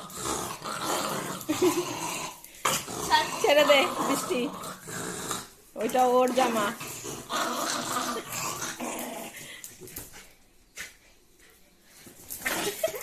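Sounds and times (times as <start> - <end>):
dog growling: 0.0 - 9.7.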